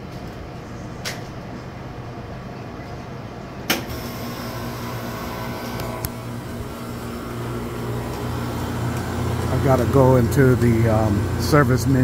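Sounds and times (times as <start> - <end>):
drink machines humming: 3.7 - 12.0.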